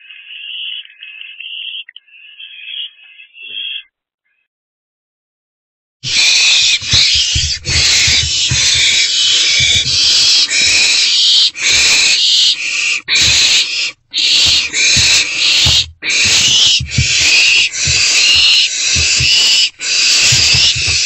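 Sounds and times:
owlets hissing: 0:06.0 - 0:21.0
low bumps: 0:06.1 - 0:10.4, 0:14.2 - 0:21.0.

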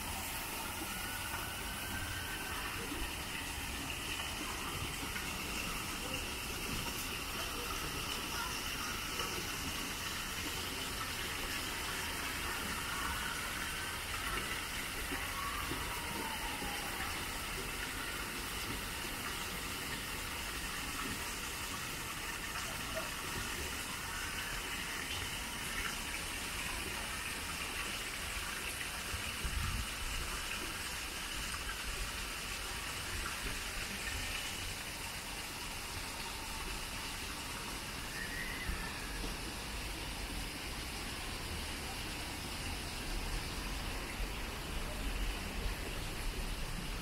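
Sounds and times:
running water rushing: 0:00.0 - 0:47.0
faint high chirps: 0:38.0 - 0:39.4.

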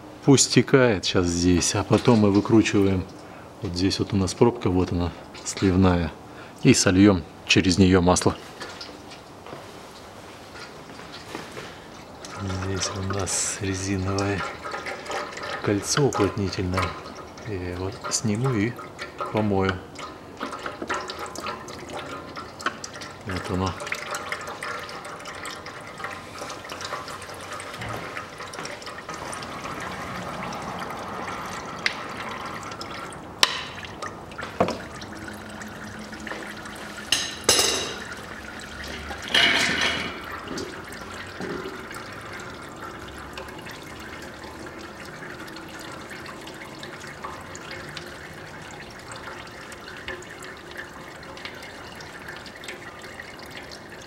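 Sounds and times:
fluid trickling into pan: 0:01.3 - 0:54.0.

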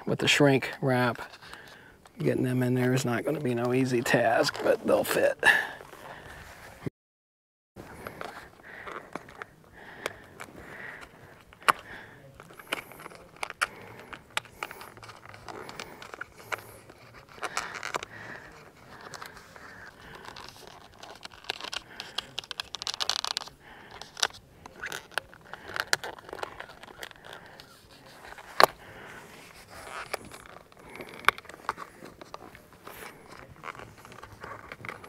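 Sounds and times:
wires scraping and rustling: 0:00.3 - 0:06.9, 0:07.8 - 0:35.0.

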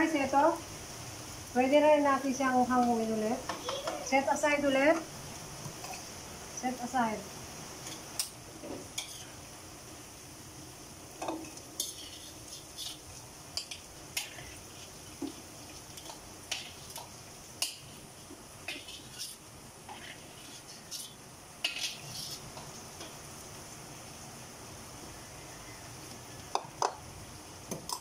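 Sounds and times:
frying oil sizzling: 0:00.0 - 0:28.0
metal tongs clinking on wok: 0:20.9 - 0:23.1.

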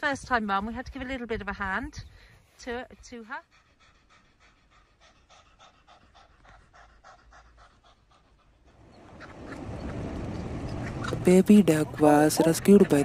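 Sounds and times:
cat panting: 0:02.4 - 0:09.6, 0:11.7 - 0:13.0.

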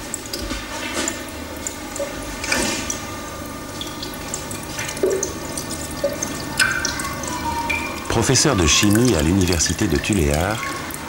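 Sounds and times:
liquid trickling through a funnel: 0:00.0 - 0:11.0.

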